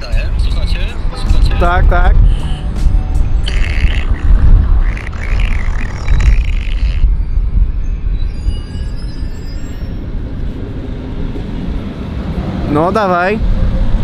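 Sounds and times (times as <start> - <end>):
street noise: 0.0 - 14.0
wind rumble on microphone: 0.0 - 14.0
fart noise through phone speaker: 3.4 - 7.1.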